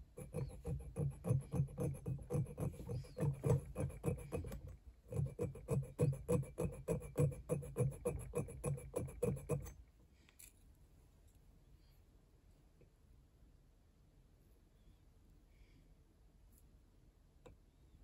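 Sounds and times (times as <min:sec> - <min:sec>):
needle file rasping on brass: 0:00.0 - 0:09.8.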